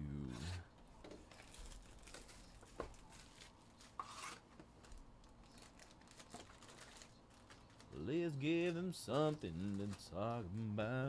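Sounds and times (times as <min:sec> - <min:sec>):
cellophane crinkling and tearing: 0:01.2 - 0:10.5.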